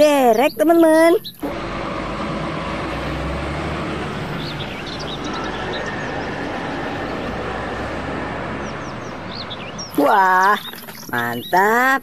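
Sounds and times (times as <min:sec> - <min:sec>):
birds chirping: 0:00.0 - 0:12.0
road noise: 0:00.0 - 0:12.0
large vehicle engine: 0:01.4 - 0:10.1.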